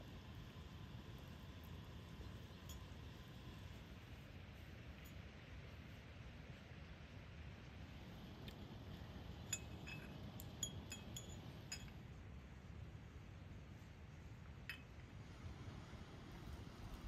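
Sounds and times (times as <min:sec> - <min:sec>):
faint low outdoor rumble: 0:00.0 - 0:17.0
tea glasses clinking: 0:09.5 - 0:12.0.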